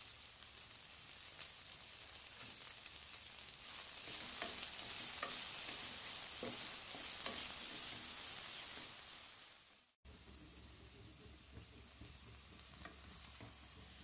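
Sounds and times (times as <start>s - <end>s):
onion sizzling in oil: 0.0s - 14.0s
spatula scraping pan: 3.6s - 9.0s.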